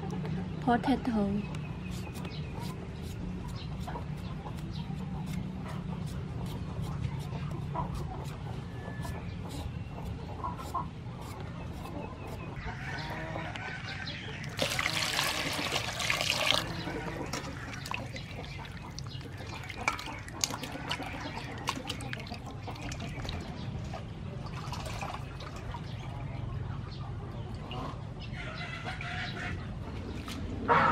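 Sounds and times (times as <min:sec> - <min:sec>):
water gushing: 0:14.5 - 0:18.2
hands splashing water in metal bowl: 0:14.5 - 0:23.4.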